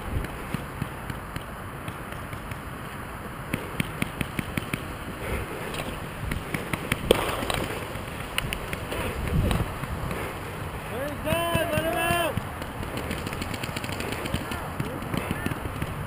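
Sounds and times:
grass rustling: 0.0s - 16.0s
paintball markers firing: 0.1s - 16.0s.

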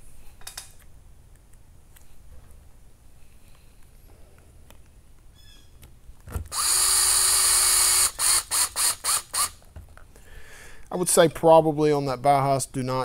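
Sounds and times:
cordless drill whining: 6.4s - 9.6s
drill trigger bursts: 6.5s - 9.6s.

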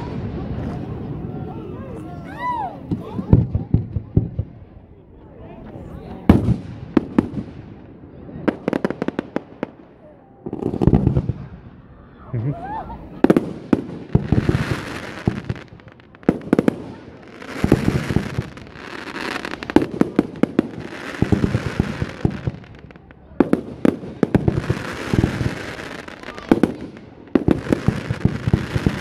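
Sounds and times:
fireworks booming: 0.0s - 4.8s, 6.2s - 29.0s
fireworks hiss: 24.0s - 29.0s.

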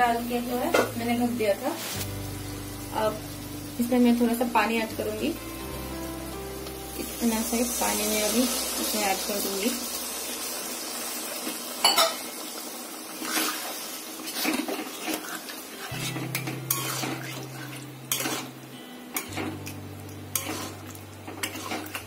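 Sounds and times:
light sizzle: 0.0s - 22.0s
spatula scraping a pan: 13.2s - 18.6s, 20.3s - 22.0s.

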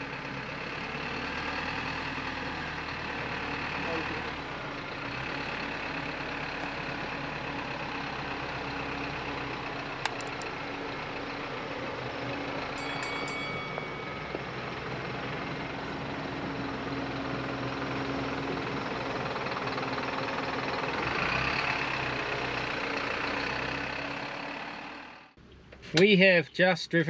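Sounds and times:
diesel engine at low revs: 0.0s - 12.8s, 13.5s - 26.1s
sharp clicks: 10.1s - 10.5s.

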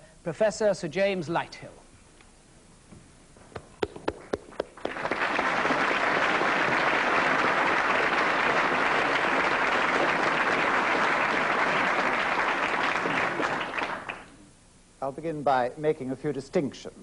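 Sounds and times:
audience applauding: 3.8s - 14.4s.

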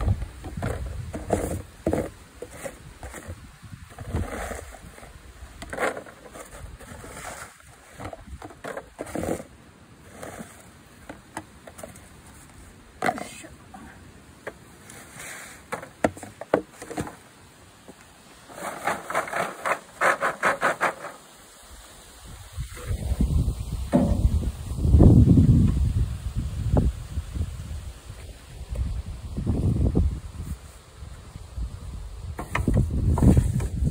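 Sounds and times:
plastic dustpan scraping tarp: 0.5s - 13.4s, 14.8s - 17.2s, 18.4s - 21.4s, 32.4s - 33.9s.

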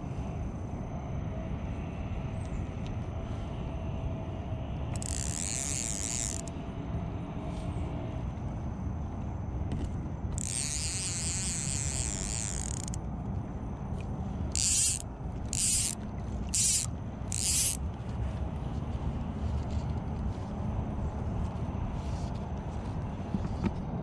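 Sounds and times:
fly reel buzzing: 5.0s - 6.5s, 10.4s - 13.0s, 14.5s - 17.8s.

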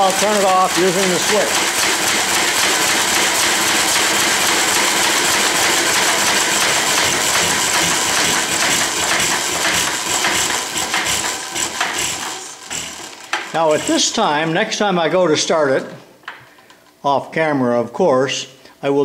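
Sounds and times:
old engine clattering to a stop: 0.0s - 14.2s.

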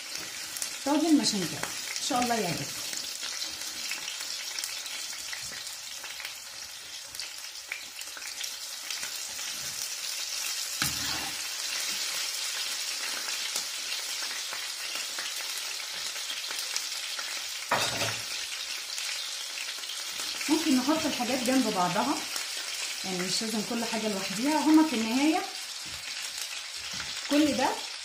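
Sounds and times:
meat sizzling in a pan: 0.0s - 28.0s.

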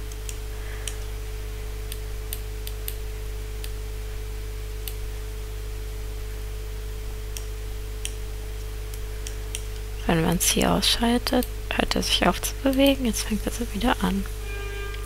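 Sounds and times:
low hum: 0.0s - 15.0s
computer mouse clicks: 7.3s - 8.2s.

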